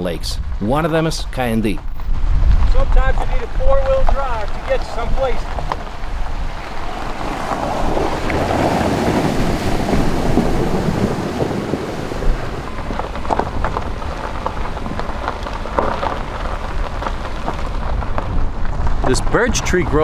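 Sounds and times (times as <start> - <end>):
tyres on gravel road: 0.0 - 20.0
vehicle splashing through water: 4.4 - 20.0.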